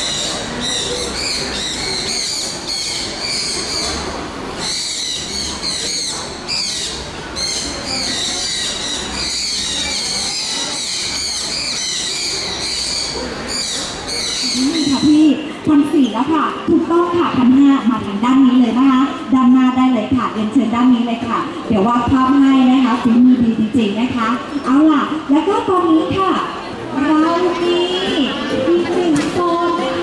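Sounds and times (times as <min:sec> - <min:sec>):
many birds chirping: 0:00.0 - 0:15.3
low background noise: 0:00.0 - 0:30.0.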